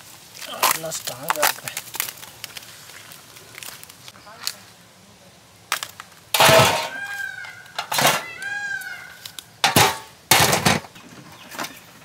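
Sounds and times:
crab shells cracking: 0:00.4 - 0:04.6, 0:05.7 - 0:06.2.

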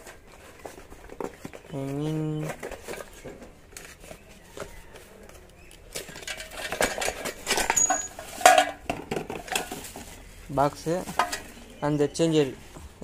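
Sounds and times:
wire rustling: 0:00.0 - 0:11.6
electrical parts clicking and knocking: 0:04.6 - 0:10.1.

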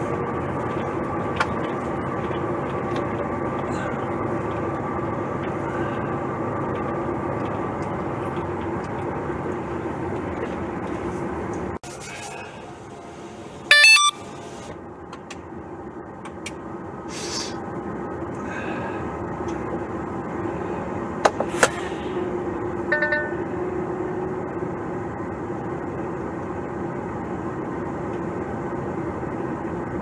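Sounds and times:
diesel truck engine running: 0:00.0 - 0:30.0
electronic beep stepping in pitch: 0:13.7 - 0:14.3, 0:22.9 - 0:23.5.

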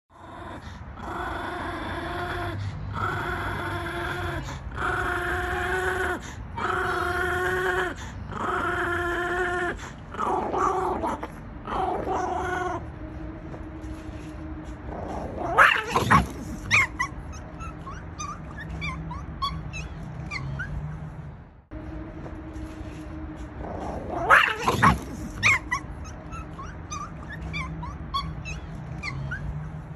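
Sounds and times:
small dog growling: 0:00.1 - 0:12.8, 0:14.8 - 0:20.8, 0:23.6 - 0:29.5
dog snarl and yelp: 0:03.0 - 0:12.8, 0:14.9 - 0:21.0, 0:23.6 - 0:29.9
dog yipping: 0:15.1 - 0:20.9, 0:23.9 - 0:29.6.

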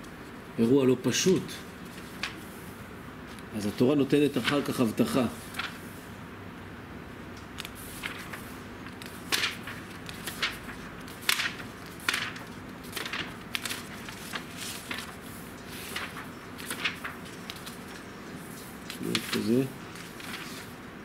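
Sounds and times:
book pages turning: 0:01.8 - 0:02.6, 0:03.2 - 0:05.9, 0:07.5 - 0:20.8.

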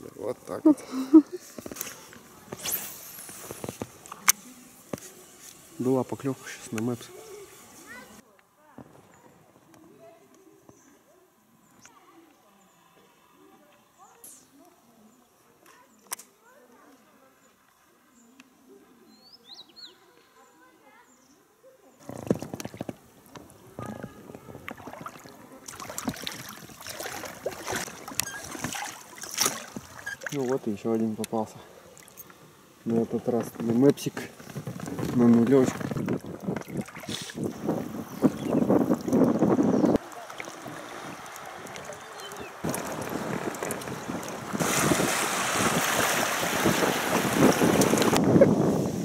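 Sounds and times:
water splashing against boat: 0:22.0 - 0:49.0
wind blowing across microphone: 0:34.4 - 0:49.0.

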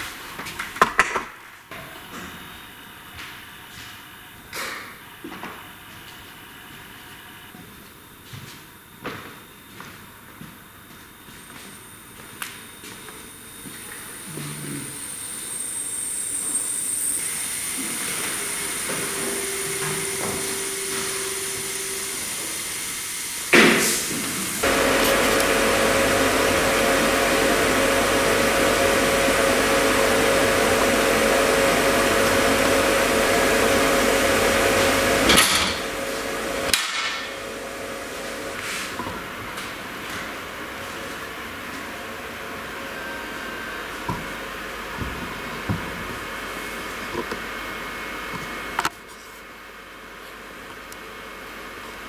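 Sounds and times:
woodworking machine humming: 0:11.4 - 0:49.0.

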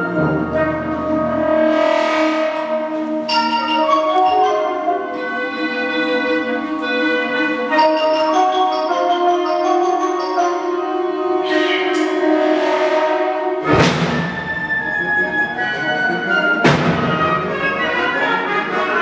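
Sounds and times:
wind band playing chords: 0:00.0 - 0:19.0
mallet percussion ringing: 0:03.3 - 0:12.4.

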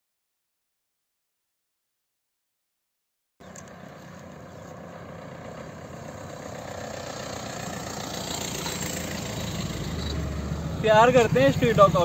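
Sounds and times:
vehicle engine humming: 0:03.4 - 0:12.0.

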